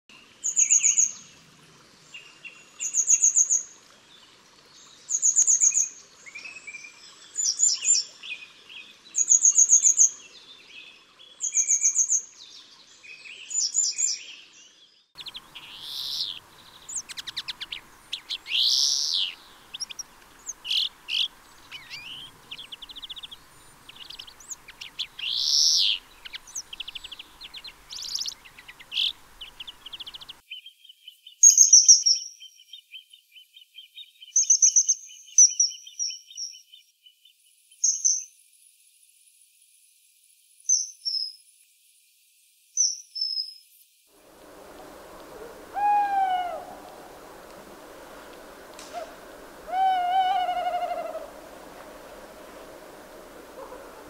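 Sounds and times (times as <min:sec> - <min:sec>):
songbird trilling: 0:15.2 - 0:30.4, 0:44.4 - 0:54.0.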